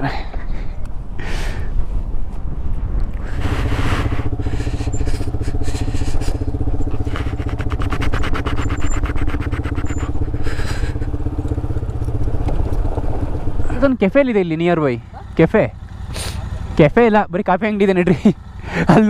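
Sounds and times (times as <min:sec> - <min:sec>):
motorcycle engine running: 0:03.1 - 0:19.0
rapid even engine pulses: 0:03.2 - 0:19.0.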